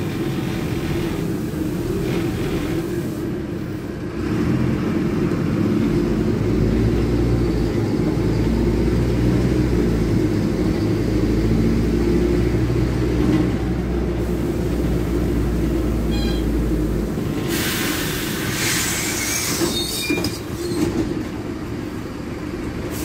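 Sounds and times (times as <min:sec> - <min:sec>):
diesel bus engine rumble: 0:00.0 - 0:23.0.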